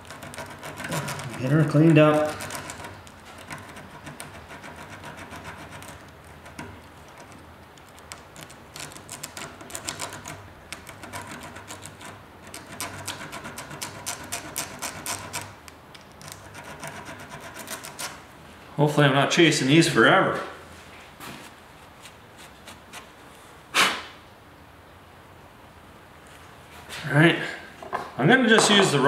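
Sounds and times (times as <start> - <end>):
scrubbing strokes on metal: 0.0 - 7.4.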